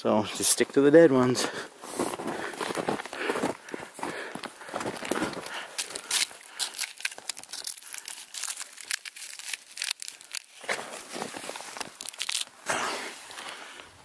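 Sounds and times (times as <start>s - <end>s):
dry bark crackling and tearing: 2.8s - 13.4s.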